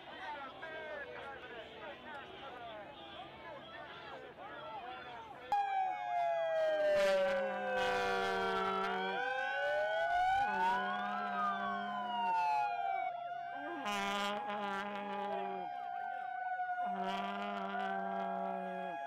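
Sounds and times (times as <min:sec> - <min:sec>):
siren wailing: 0:05.5 - 0:19.0.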